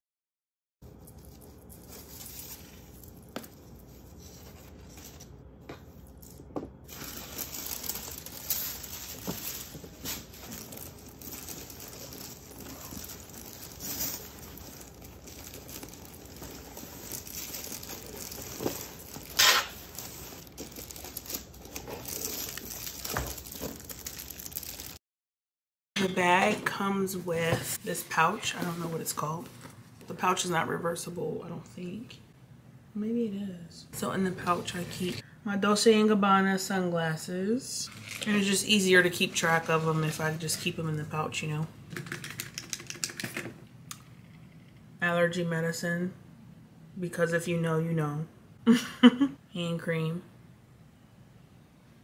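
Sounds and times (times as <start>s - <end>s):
paper and plastic packaging rustling: 0.8s - 25.0s, 37.9s - 40.9s.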